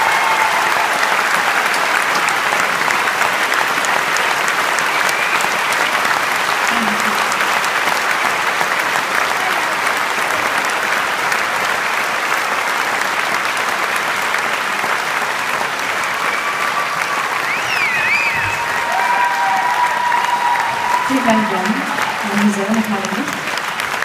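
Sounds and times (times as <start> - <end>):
audience applauding: 0.0 - 24.0
whistles from audience: 4.8 - 5.7, 16.0 - 18.9.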